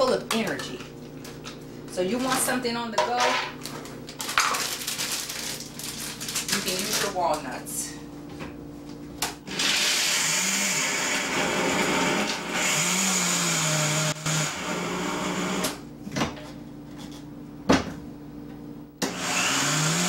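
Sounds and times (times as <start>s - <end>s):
blender chopping nuts: 9.4s - 15.8s, 19.0s - 20.0s.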